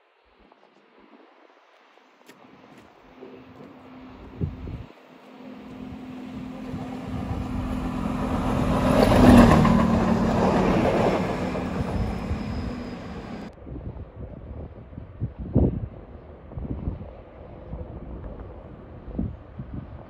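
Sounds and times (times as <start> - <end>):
diesel railcar passing: 3.4 - 13.6.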